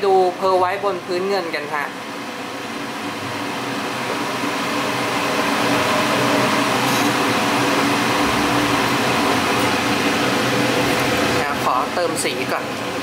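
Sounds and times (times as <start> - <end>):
extraction fan whirring: 0.0 - 13.0.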